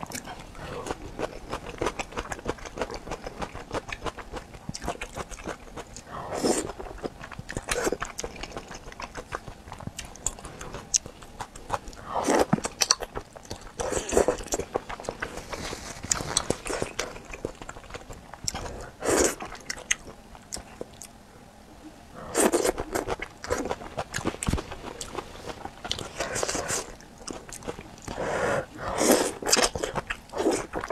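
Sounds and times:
chewing: 0.0 - 21.2, 22.1 - 30.9
person slurping noodles: 22.2 - 23.8, 28.1 - 30.8.

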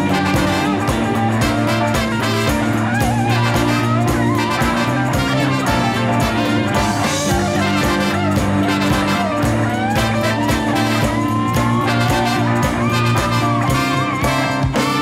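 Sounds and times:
electric bass low notes: 0.0 - 15.0
horn section playing: 0.0 - 15.0.

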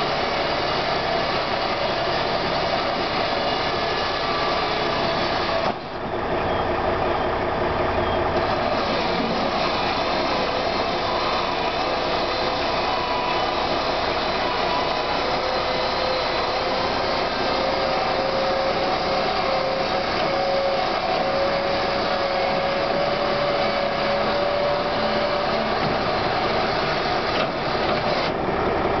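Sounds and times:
truck engine idling: 0.0 - 29.0
electric gate motor whining: 8.4 - 28.4.

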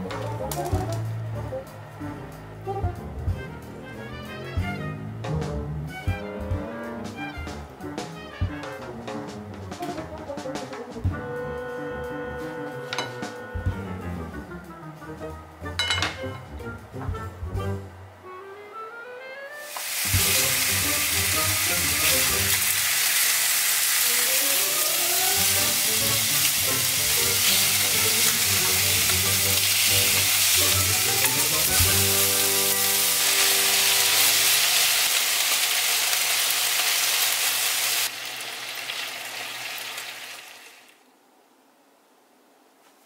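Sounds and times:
food sizzling in a frying pan: 19.6 - 41.0.

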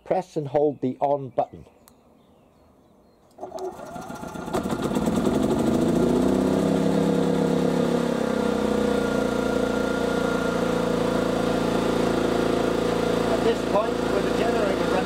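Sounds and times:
electric starter cranking: 3.4 - 7.9
generator engine running: 3.4 - 15.0.

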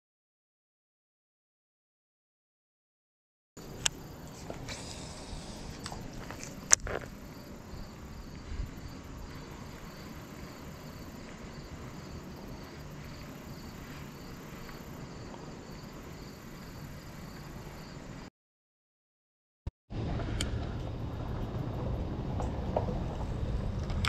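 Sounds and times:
crickets chirping: 3.6 - 18.3, 20.0 - 24.0
low outdoor rumble: 3.6 - 18.3, 19.9 - 24.0.

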